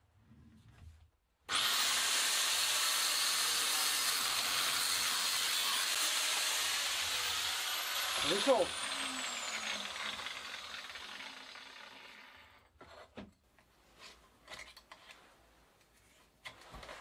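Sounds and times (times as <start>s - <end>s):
angle grinder cutting steel: 1.5s - 12.6s.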